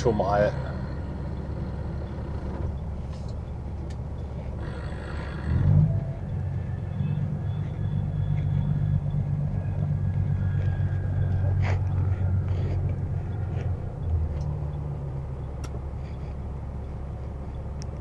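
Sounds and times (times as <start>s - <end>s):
truck engine and road rumble: 0.0s - 18.0s.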